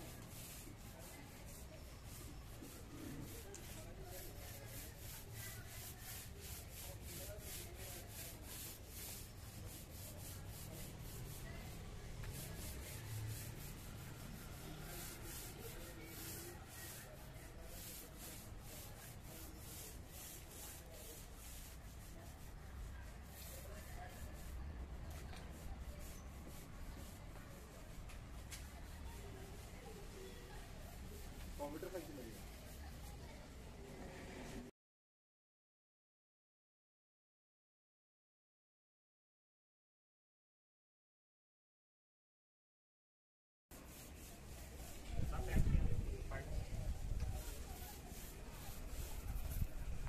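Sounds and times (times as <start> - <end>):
paint roller rolling over floor: 0.0 - 22.1, 25.1 - 34.7, 46.9 - 49.8.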